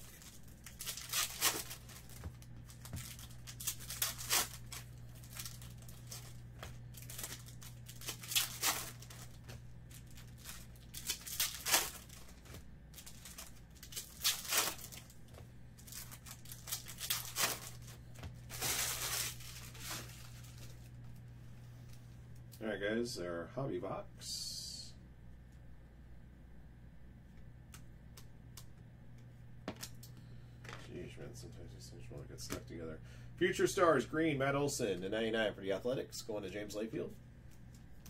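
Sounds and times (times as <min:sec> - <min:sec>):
foil wrappers tearing and crinkling: 0:00.0 - 0:15.2, 0:15.8 - 0:20.9
steady low hum: 0:00.0 - 0:38.0.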